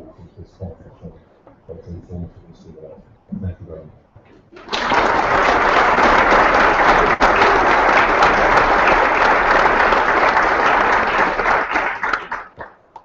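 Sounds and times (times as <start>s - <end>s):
audience applauding: 4.6s - 12.8s.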